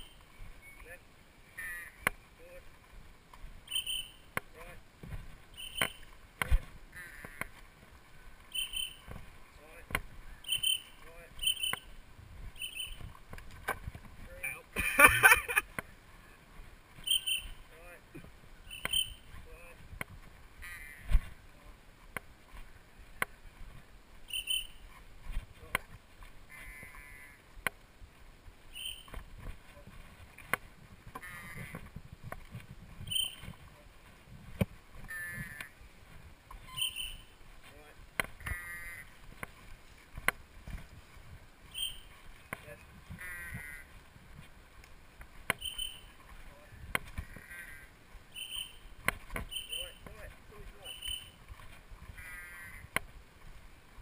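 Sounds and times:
short high bird calls: 0:00.0 - 0:02.1, 0:03.7 - 0:04.3, 0:05.5 - 0:06.1, 0:08.5 - 0:09.0, 0:10.3 - 0:12.0, 0:12.6 - 0:13.0, 0:17.0 - 0:17.6, 0:18.6 - 0:19.3, 0:24.3 - 0:25.0, 0:28.7 - 0:29.2, 0:33.1 - 0:33.5, 0:36.6 - 0:37.4, 0:41.7 - 0:42.1, 0:45.6 - 0:46.2, 0:47.2 - 0:48.9, 0:49.5 - 0:50.0, 0:50.8 - 0:51.4
short high chirp: 0:03.7 - 0:04.2, 0:48.4 - 0:48.8.

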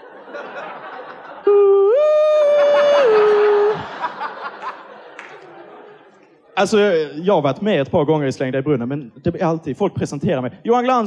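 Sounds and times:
audience laughter: 0:00.0 - 0:06.4
man humming into microphone: 0:01.5 - 0:03.9.

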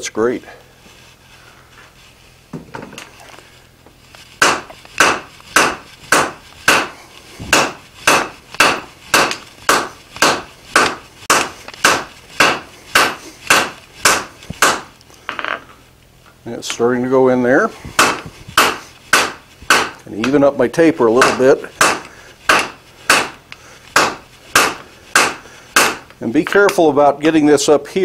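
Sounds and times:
hammer striking steel on anvil: 0:04.4 - 0:15.5, 0:18.0 - 0:20.5, 0:21.1 - 0:26.8.

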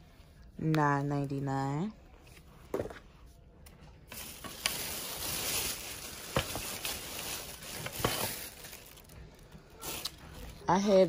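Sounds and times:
plastic bag rustling: 0:04.0 - 0:11.0.

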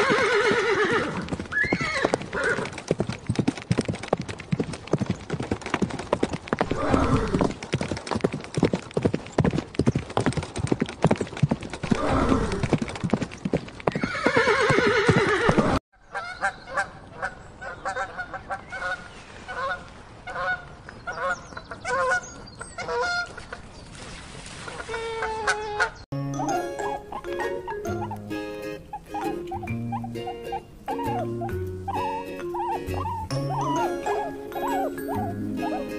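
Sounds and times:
clatter of hooves: 0:00.0 - 0:15.8, 0:26.4 - 0:35.9
pelicans honking: 0:25.6 - 0:35.9
foal neighing: 0:28.9 - 0:35.9.

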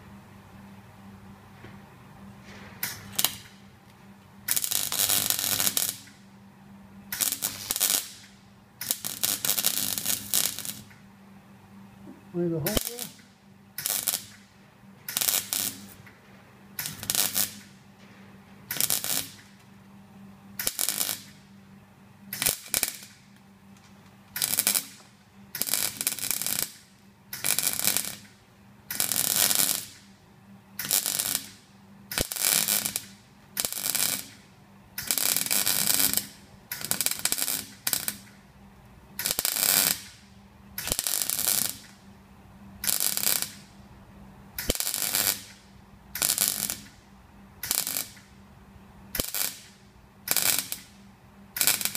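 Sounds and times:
low steady hum: 0:00.0 - 0:30.8, 0:34.2 - 0:39.3, 0:40.0 - 0:42.8, 0:48.2 - 0:49.2
welder arc bursts: 0:02.8 - 0:03.6, 0:04.4 - 0:06.2, 0:07.1 - 0:11.0, 0:12.4 - 0:16.1, 0:16.7 - 0:17.9, 0:18.6 - 0:19.6, 0:20.6 - 0:21.4, 0:22.3 - 0:23.4, 0:24.3 - 0:30.1, 0:30.8 - 0:38.4, 0:39.2 - 0:42.0, 0:42.8 - 0:43.8, 0:44.6 - 0:47.0, 0:47.6 - 0:48.3, 0:49.1 - 0:51.9.

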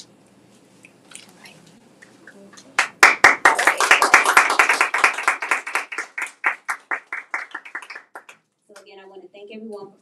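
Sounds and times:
small group applauding: 0:02.6 - 0:08.9.

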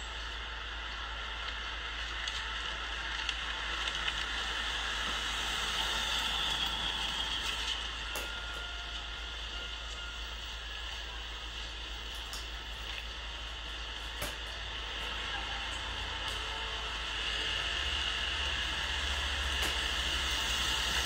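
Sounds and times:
street ambience hiss: 0:00.0 - 0:21.0
faint clicks and ticks: 0:00.1 - 0:05.2.

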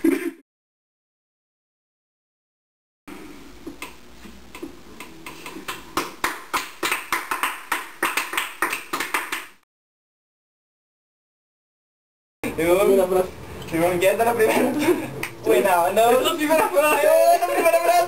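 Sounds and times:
people clapping: 0:04.6 - 0:09.6, 0:15.2 - 0:15.4.

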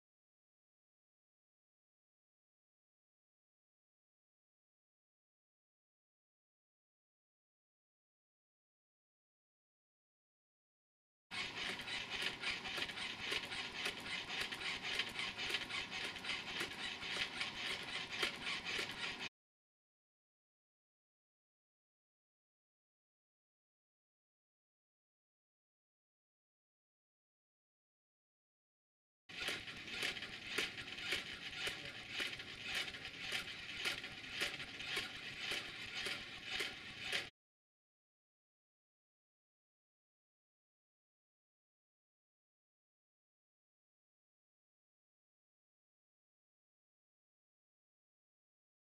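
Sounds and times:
robot arm motors whirring: 0:11.4 - 0:19.3, 0:29.3 - 0:37.3.

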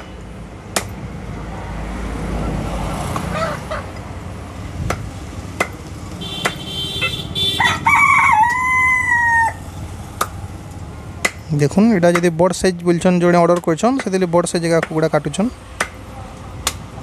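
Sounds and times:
rooster crowing: 0:03.3 - 0:03.8, 0:07.4 - 0:09.7
cleaver chopping on wooden block: 0:04.8 - 0:05.8, 0:11.2 - 0:11.5, 0:15.8 - 0:16.0, 0:16.6 - 0:16.9.

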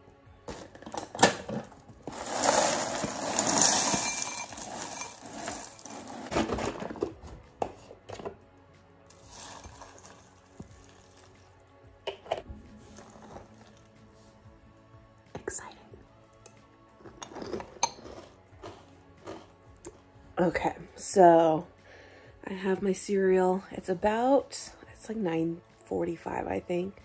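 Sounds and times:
dry cereal pouring into bowl: 0:02.1 - 0:06.3, 0:09.1 - 0:11.4
glass bowl clinking on stone: 0:02.4 - 0:05.9.

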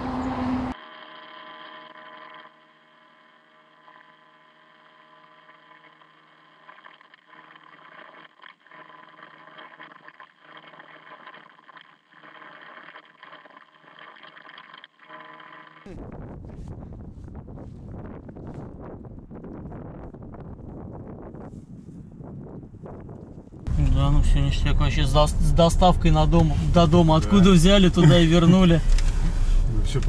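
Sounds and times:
faint hum: 0:00.0 - 0:14.2, 0:23.7 - 0:30.0
motor running steadily: 0:00.0 - 0:18.2, 0:23.7 - 0:30.0
steady tones: 0:23.7 - 0:30.0.

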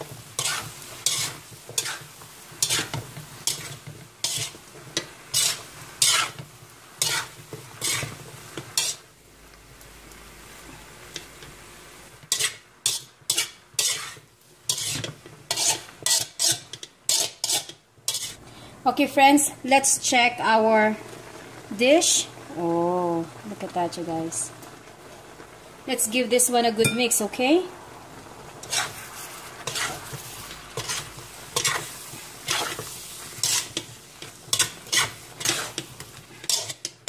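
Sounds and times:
utensil scraping a frying pan: 0:00.0 - 0:09.1, 0:12.2 - 0:18.4, 0:28.6 - 0:37.0
vegetables sizzling in a pan: 0:00.0 - 0:37.0.

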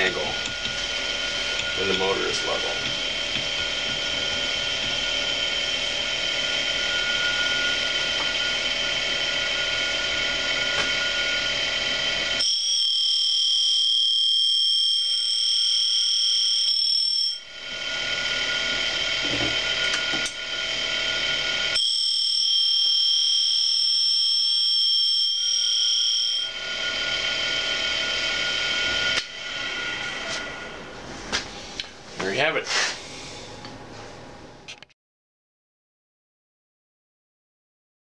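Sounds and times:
grinding wheel on metal: 0:00.0 - 0:12.4, 0:17.6 - 0:21.8
grinder high-pitched whine: 0:00.0 - 0:33.4.

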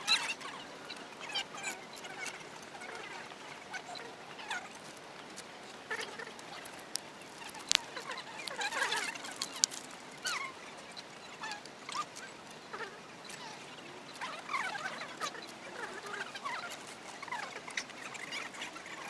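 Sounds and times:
sharp clicks: 0:06.2 - 0:09.9.

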